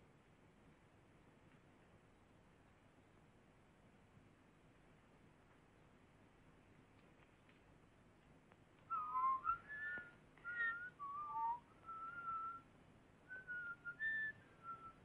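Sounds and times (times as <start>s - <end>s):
person whistling a tune: 8.9s - 12.6s, 13.3s - 15.0s.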